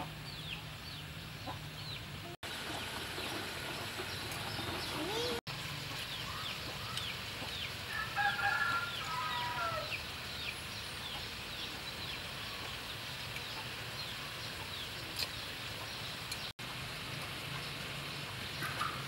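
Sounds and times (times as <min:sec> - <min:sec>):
rooster crowing: 0:07.9 - 0:10.0.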